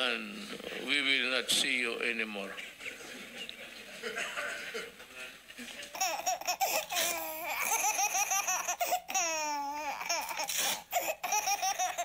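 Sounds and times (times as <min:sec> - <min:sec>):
baby laughing: 0:05.9 - 0:12.0
baby squealing with laughter: 0:06.0 - 0:12.0.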